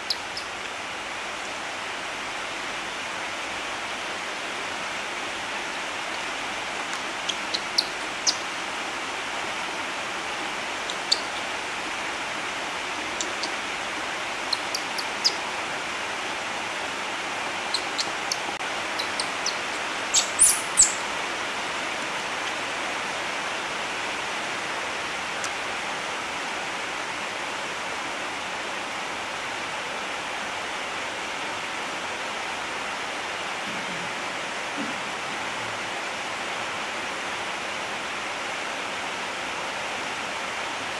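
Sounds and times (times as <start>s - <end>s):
steady hiss: 0.0s - 40.9s
baby monkey squeaky whimpers: 17.7s - 18.4s, 19.0s - 21.0s.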